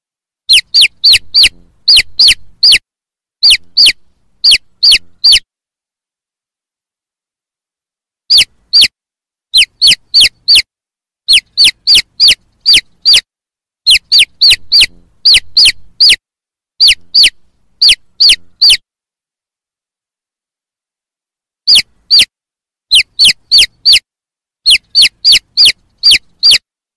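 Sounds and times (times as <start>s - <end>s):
chicks peeping: 0.5s - 2.8s, 3.4s - 5.4s, 8.3s - 8.9s, 9.6s - 10.7s, 11.3s - 13.2s, 13.9s - 16.2s, 16.8s - 18.8s, 21.7s - 22.3s, 22.9s - 24.0s, 24.7s - 26.6s.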